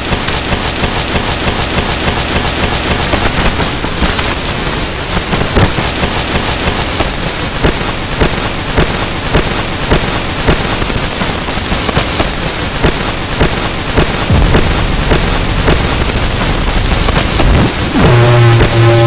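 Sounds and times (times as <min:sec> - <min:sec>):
harsh noise music static: 0:00.0 - 0:19.0
sharp pops: 0:11.7 - 0:19.0.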